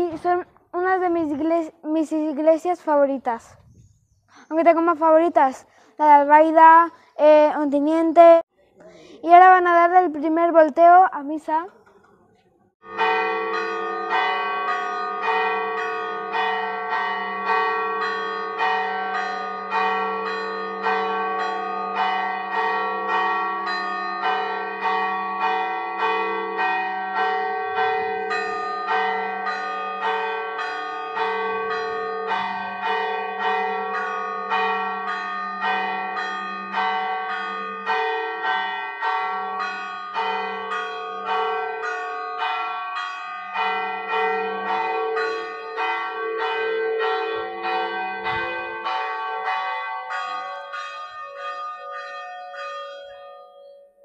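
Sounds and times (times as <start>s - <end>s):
church bells ringing: 12.8s - 54.0s.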